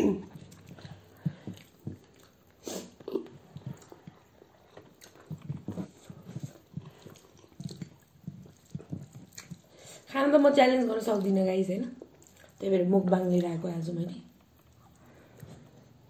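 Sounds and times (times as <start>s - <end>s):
lip smacks: 0.0s - 10.1s
people chewing food: 0.0s - 16.0s.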